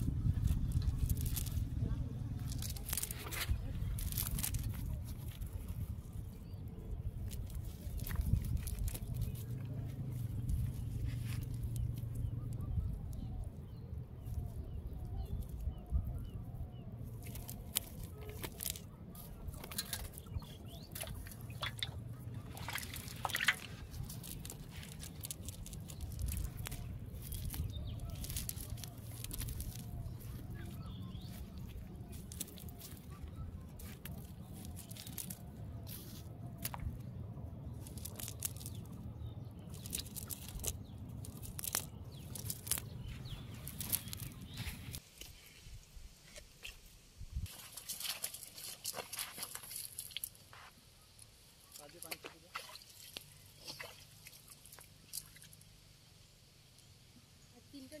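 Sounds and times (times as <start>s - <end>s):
steady low rumble: 0.0s - 45.0s
wet clicking and squelching of fish: 17.0s - 37.1s, 37.7s - 45.3s, 47.5s - 50.5s, 51.2s - 55.8s.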